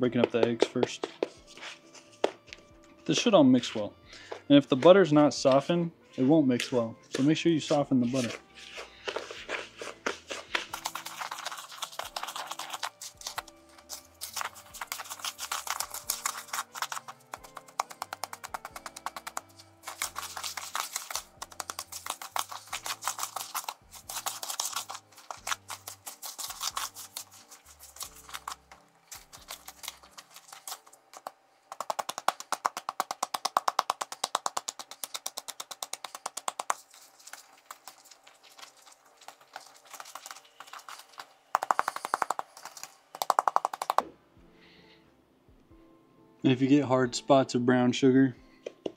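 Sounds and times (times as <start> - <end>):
spatula stirring batter in bowl: 8.1 - 42.8.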